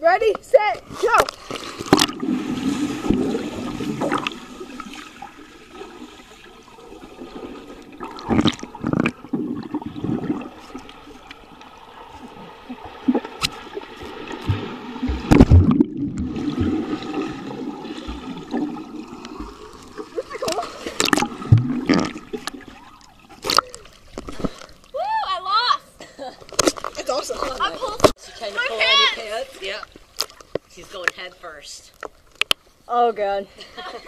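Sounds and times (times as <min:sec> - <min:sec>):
dull knocks underwater: 0:13.0 - 0:19.6, 0:20.5 - 0:22.6.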